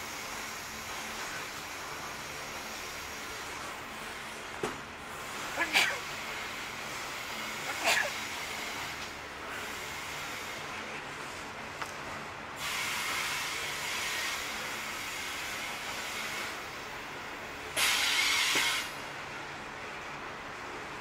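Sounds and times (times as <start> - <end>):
train wagons rolling on rails: 0.0 - 21.0
burst of hiss: 12.6 - 15.2, 17.8 - 19.0.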